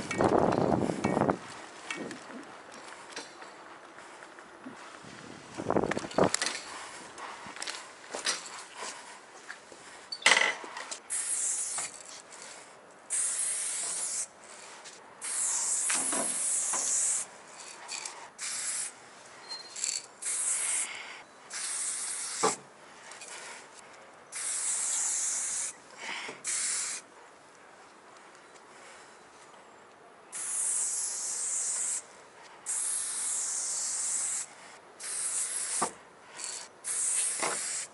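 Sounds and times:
spray paint can hissing: 11.1 - 12.1, 13.1 - 14.3, 15.2 - 19.0, 19.7 - 22.6, 24.3 - 25.8, 26.4 - 27.0, 30.3 - 32.1, 32.7 - 37.9.

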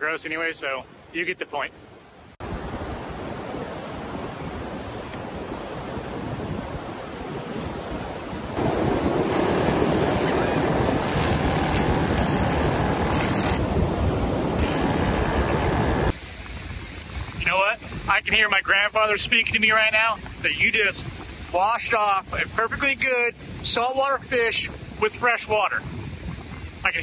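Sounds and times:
ocean surf: 2.4 - 16.5
wind buffeting microphone: 2.4 - 27.0.

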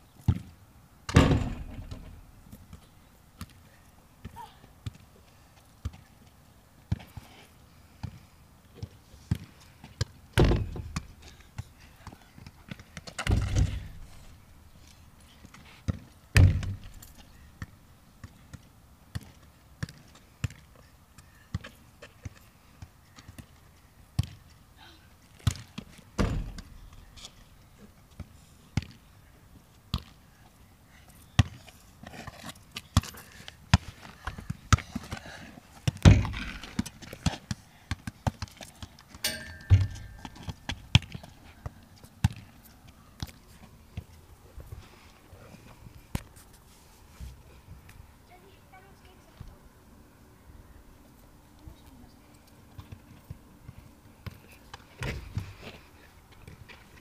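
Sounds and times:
football kicked and bouncing: 0.2 - 3.6, 8.8 - 14.1, 15.9 - 17.0, 17.6 - 20.7, 25.4 - 27.0, 32.8 - 42.5, 52.8 - 55.8.

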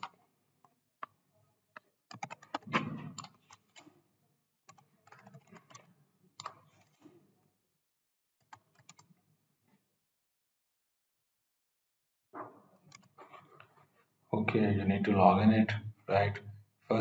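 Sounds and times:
keyboard typing: 2.1 - 3.9, 4.7 - 7.0, 8.4 - 9.1, 12.9 - 13.4.

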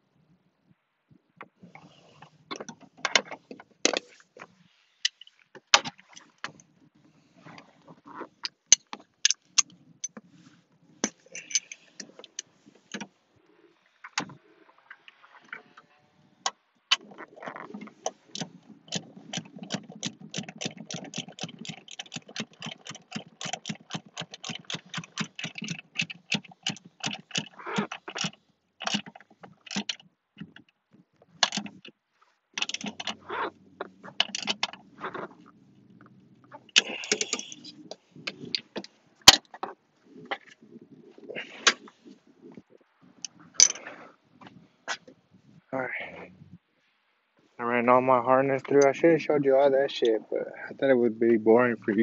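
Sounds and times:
tools clicking and knocking: 11.0 - 13.1, 18.0 - 30.6, 31.4 - 31.9, 32.6 - 33.2, 34.1 - 34.8, 36.8 - 37.7, 43.6 - 43.9
quick run of clicks: 18.0 - 30.0.

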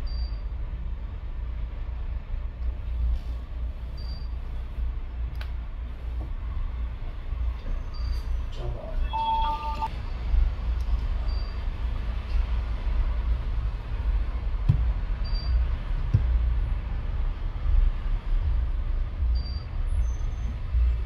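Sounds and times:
low background rumble: 9.8 - 21.0.

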